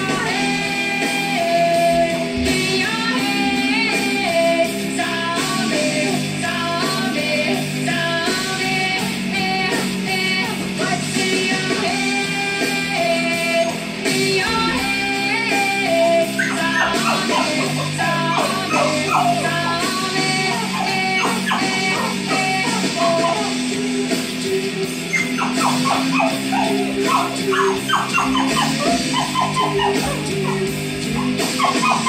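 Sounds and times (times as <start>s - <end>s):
rock music with guitar: 0.0s - 32.0s.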